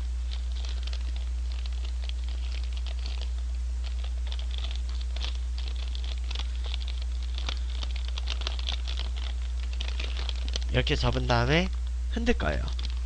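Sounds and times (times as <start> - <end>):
low hum: 0.0 - 13.0
paper bag crinkling: 0.2 - 11.8, 12.5 - 13.0.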